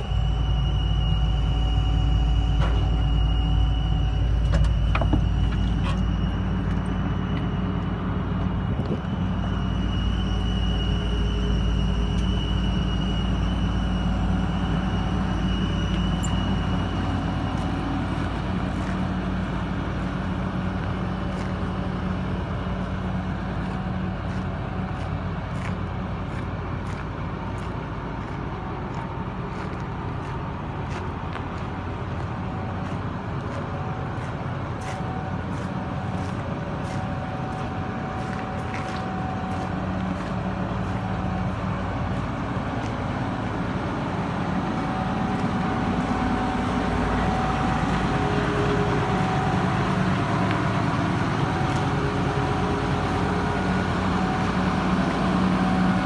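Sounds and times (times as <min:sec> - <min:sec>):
high steady tone: 0:00.0 - 0:21.2
excavator diesel engine idling: 0:00.0 - 0:56.0.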